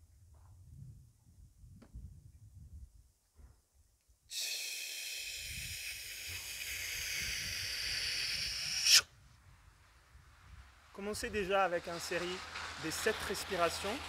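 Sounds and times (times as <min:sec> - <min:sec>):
person exhaling slowly: 0:04.3 - 0:09.0
sharp breath push: 0:04.3 - 0:09.1.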